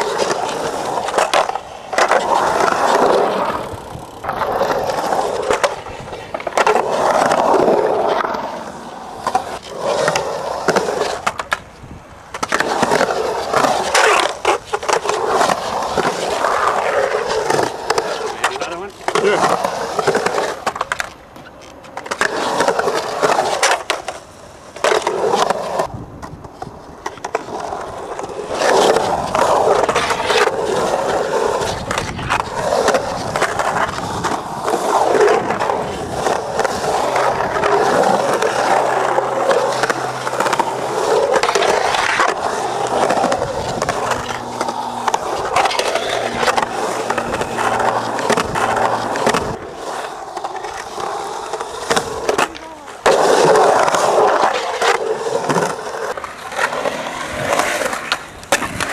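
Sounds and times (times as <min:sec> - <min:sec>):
skateboard clacks: 0:00.0 - 0:58.9
skateboard wheels rolling on concrete: 0:00.0 - 0:58.9.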